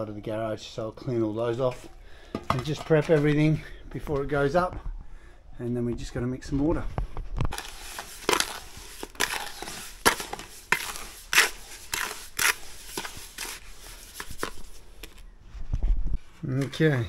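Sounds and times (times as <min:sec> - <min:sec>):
trowel scraping mortar in bucket: 0:07.5 - 0:15.2.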